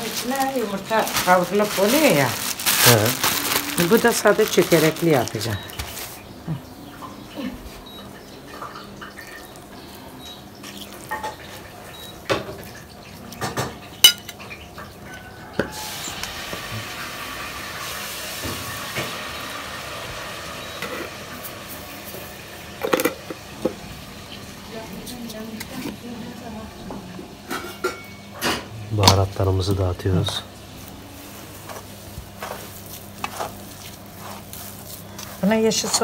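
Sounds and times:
utensils clinking against dishes: 7.0s - 16.3s, 27.4s - 29.5s.

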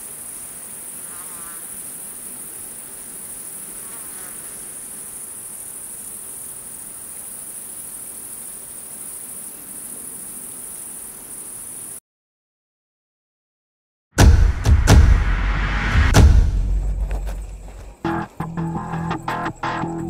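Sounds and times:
crickets trilling: 0.0s - 12.0s, 16.6s - 20.0s.

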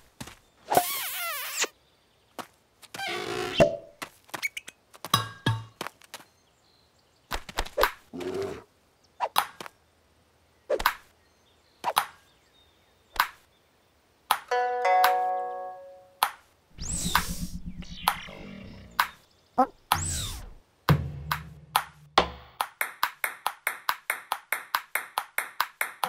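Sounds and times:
cartoon knocks and thuds: 20.9s - 22.7s.

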